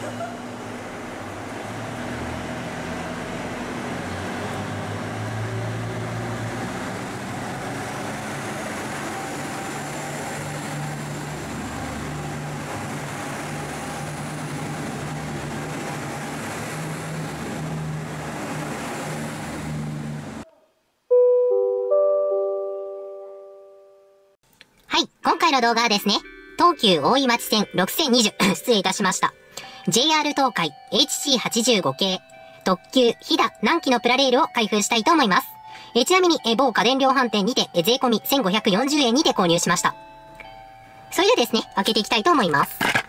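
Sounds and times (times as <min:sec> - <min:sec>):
diesel railcar engine under load: 0:00.0 - 0:20.4.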